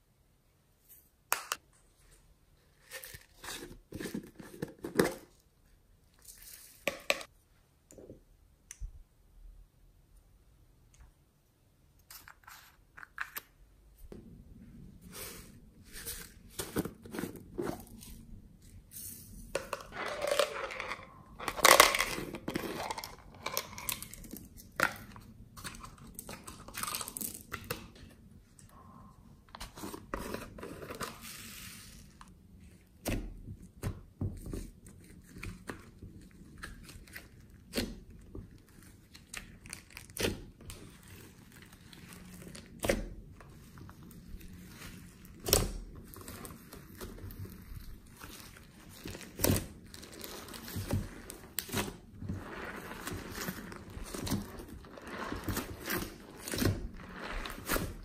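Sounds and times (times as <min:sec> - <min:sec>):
plastic containers clicking and crackling: 0:19.6 - 0:28.0.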